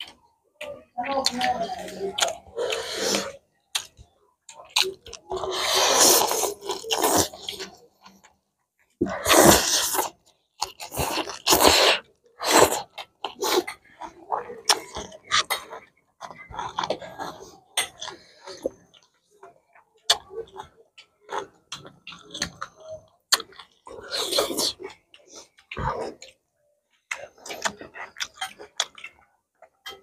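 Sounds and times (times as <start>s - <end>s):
people chewing: 0.0s - 30.0s
people slurping noodles: 1.1s - 4.0s, 4.8s - 7.8s, 9.0s - 18.8s.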